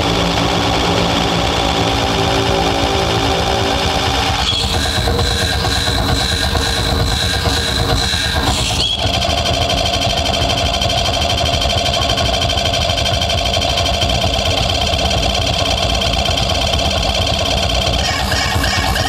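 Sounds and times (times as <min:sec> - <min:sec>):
heavy low rumble: 0:00.0 - 0:08.8
stuttering synthesized voice tone: 0:00.0 - 0:08.9, 0:17.8 - 0:19.0.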